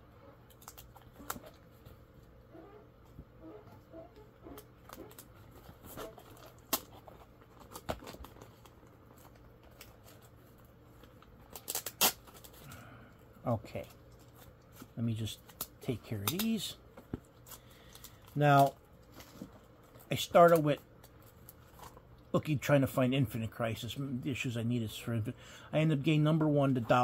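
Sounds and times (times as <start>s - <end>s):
paper and plastic rustling: 5.0s - 12.7s, 13.7s - 22.0s.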